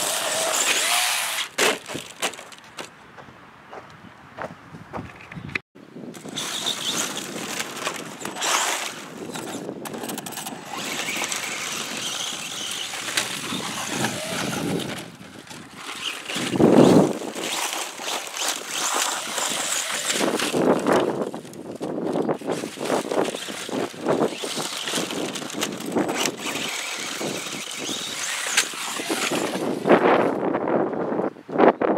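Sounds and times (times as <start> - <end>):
electric toy truck motor: 0.0 - 1.5, 6.2 - 30.2
tyres scrabbling on gravel: 0.0 - 3.3, 6.1 - 30.5.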